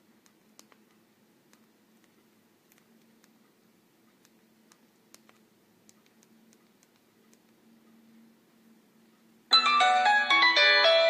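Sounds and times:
phone ringtone tune: 0:09.5 - 0:11.0.

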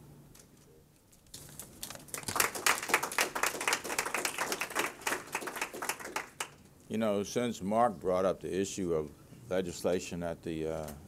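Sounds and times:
audience applauding: 0:02.0 - 0:06.6.

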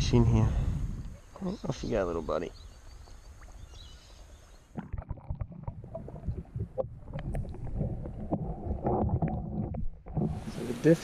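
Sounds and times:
muffled underwater water sloshing: 0:03.1 - 0:11.0.

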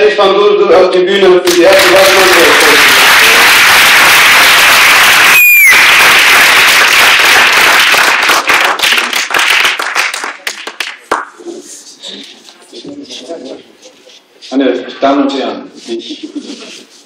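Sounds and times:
audience applauding: 0:01.5 - 0:11.3.

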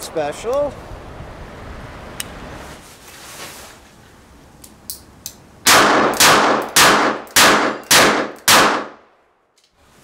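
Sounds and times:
revolver gunshots: 0:05.6 - 0:09.0.

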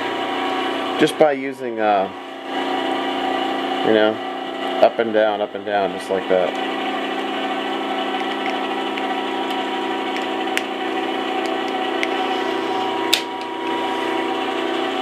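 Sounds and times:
metal lathe humming: 0:00.0 - 0:15.0.

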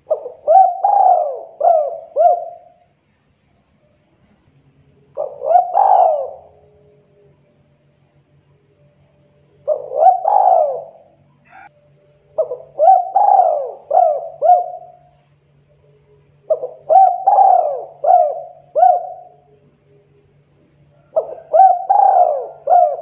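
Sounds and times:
dove cooing: 0:00.0 - 0:02.8, 0:05.1 - 0:07.0, 0:09.6 - 0:11.7, 0:12.4 - 0:15.2, 0:16.4 - 0:19.6, 0:21.0 - 0:23.0.

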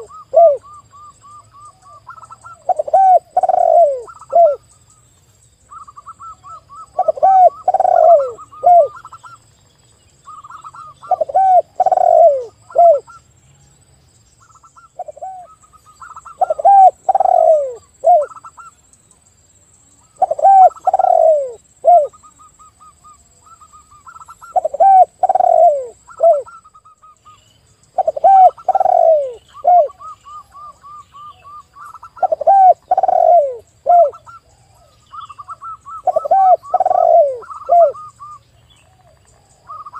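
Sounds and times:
low descending dove coos: 0:00.0 - 0:01.1, 0:01.9 - 0:04.6, 0:06.2 - 0:09.1, 0:10.8 - 0:13.1, 0:16.2 - 0:18.4, 0:20.2 - 0:22.2, 0:24.5 - 0:26.6, 0:28.0 - 0:34.3, 0:35.5 - 0:38.1
high staccato dove cooing: 0:02.6 - 0:04.6, 0:07.0 - 0:09.1, 0:11.1 - 0:13.0, 0:16.2 - 0:18.4, 0:20.2 - 0:22.2, 0:24.5 - 0:26.6, 0:28.0 - 0:30.1, 0:32.1 - 0:34.3, 0:36.0 - 0:38.0.

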